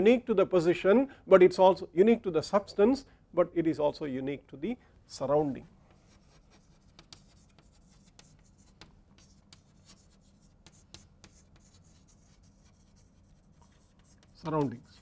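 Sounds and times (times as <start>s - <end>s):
chalk on chalkboard: 5.9s - 15.0s.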